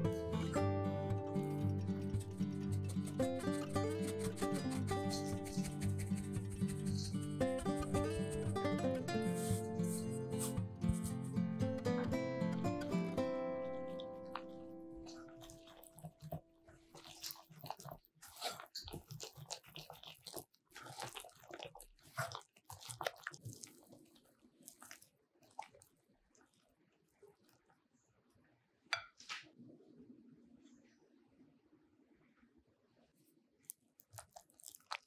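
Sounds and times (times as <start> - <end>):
whisk scraping glass bowl: 1.8 - 10.0
wet batter squelches: 14.2 - 27.9, 33.6 - 35.0.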